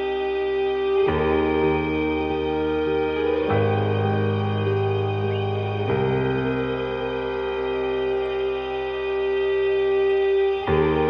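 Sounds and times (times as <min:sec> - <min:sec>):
slow ambient music: 0:00.0 - 0:11.0.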